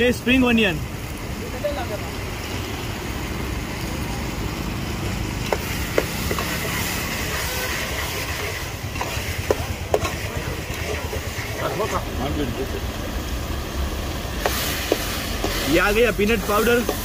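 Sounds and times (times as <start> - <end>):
ladle stirring thick curry: 5.3 - 12.3, 14.3 - 17.0.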